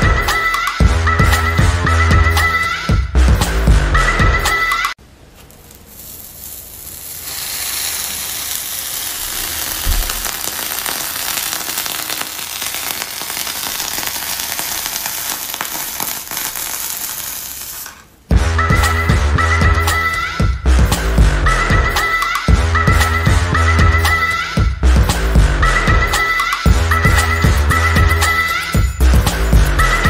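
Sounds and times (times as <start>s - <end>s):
hair straightener sizzling: 5.4s - 18.0s.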